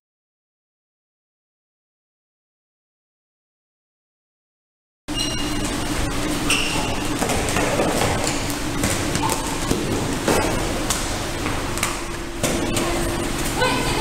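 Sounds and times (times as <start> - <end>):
short high squeak: 5.1 - 5.7, 6.4 - 7.0
steady hum: 5.1 - 14.0
feet thumping on floor: 6.7 - 13.1.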